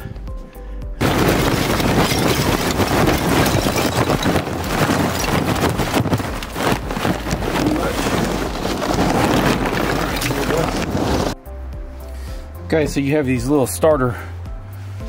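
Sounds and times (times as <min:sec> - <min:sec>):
charcoal lumps clattering: 0:01.0 - 0:11.4.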